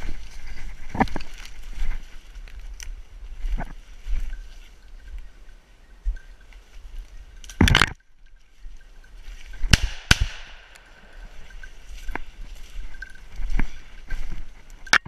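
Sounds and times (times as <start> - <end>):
shotgun shots: 9.7 - 10.7.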